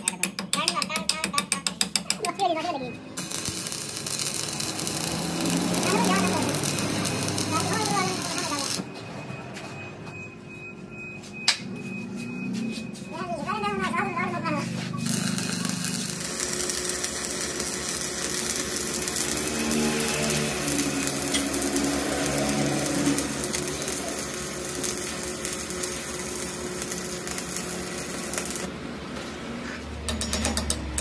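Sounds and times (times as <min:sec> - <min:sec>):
welding arc crackling and sizzling: 0:03.2 - 0:08.9, 0:13.9 - 0:28.8.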